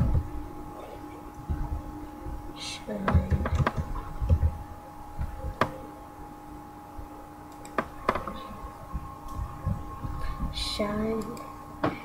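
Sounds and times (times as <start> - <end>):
faint electrical hum: 0.0 - 12.0
sharp clicks: 7.5 - 8.4.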